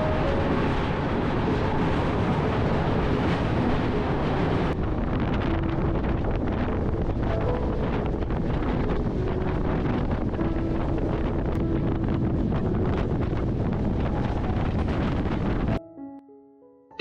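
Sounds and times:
passenger train running: 0.0 - 15.8
wind buffeting microphone: 0.0 - 15.8.

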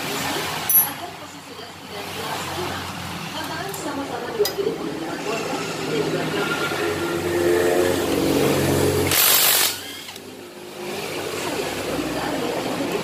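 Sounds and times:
tools clinking on metal: 0.7 - 1.1
power tool motor running: 8.9 - 10.3.

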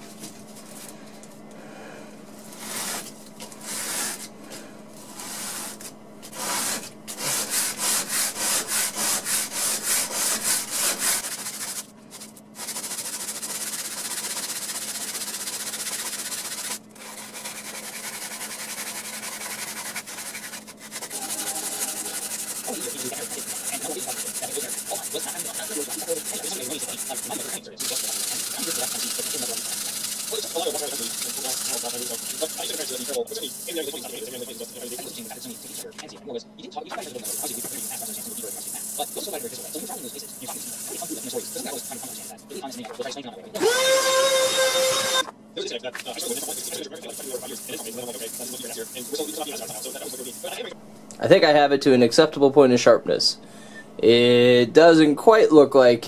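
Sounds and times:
metal card sanding on sandpaper: 2.4 - 4.3, 5.0 - 35.9, 37.0 - 42.8, 46.0 - 50.6.

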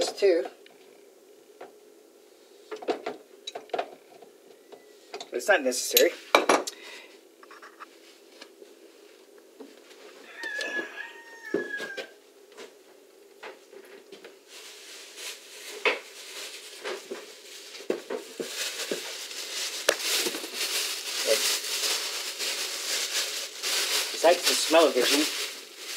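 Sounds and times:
steady hiss: 14.4 - 25.9.

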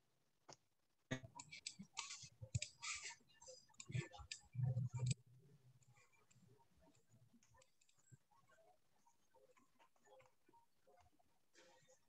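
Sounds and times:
mouse and keyboard clicks: 1.1 - 5.2.

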